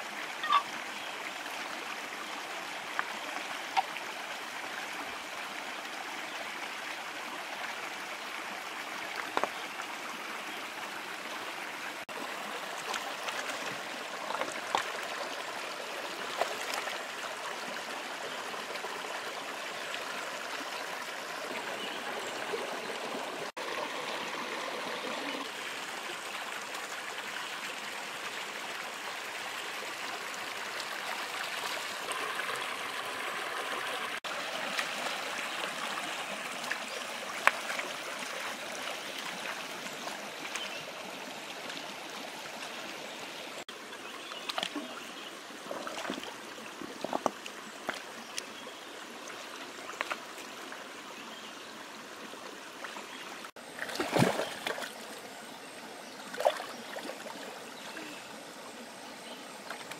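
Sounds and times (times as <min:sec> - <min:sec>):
stream running over stones: 0:00.0 - 0:59.9
splashes from wading: 0:45.6 - 0:46.3, 0:53.7 - 0:55.2, 0:56.3 - 0:57.5.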